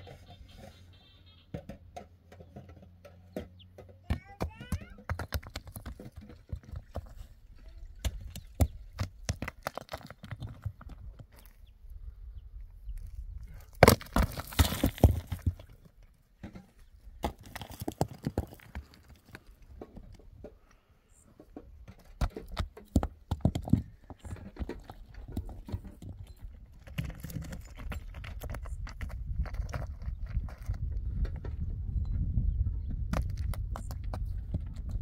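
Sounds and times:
rocks knocking and clacking: 1.6 - 11.7, 12.9 - 32.2, 32.9 - 35.0
footsteps on scree: 26.8 - 31.4.

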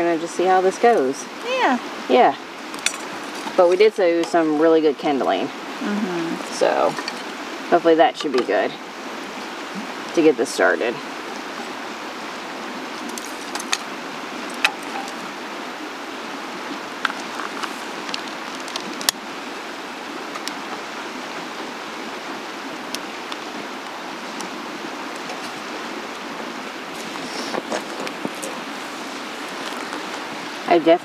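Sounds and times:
rushing background hiss: 0.0 - 31.0.

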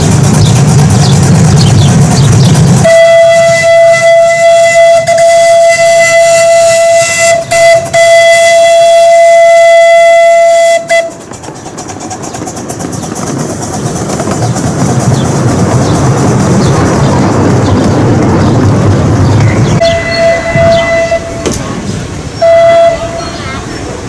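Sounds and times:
moving train rumble: 0.0 - 24.0
steam whistle blast: 2.8 - 11.2, 19.8 - 21.6, 22.4 - 23.4.

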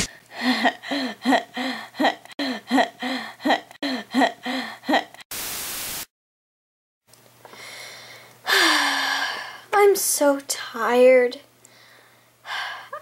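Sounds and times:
tv static: 5.3 - 6.1.

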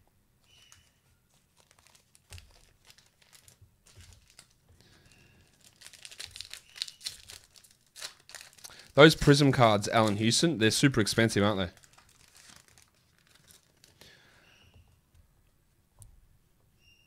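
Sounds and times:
wrapper tearing and crinkling: 0.6 - 4.6, 5.4 - 10.3, 11.6 - 14.0.

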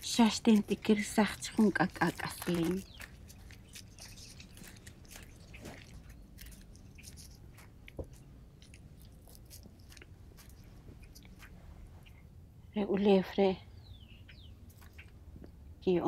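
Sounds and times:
maize kernels crackling and clicking: 0.0 - 11.6, 14.7 - 15.2.

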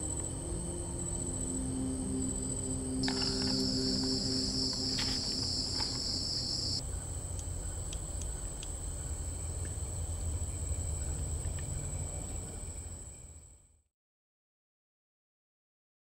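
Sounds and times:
high insect trill: 0.0 - 6.8
low insect trill: 0.0 - 6.9.

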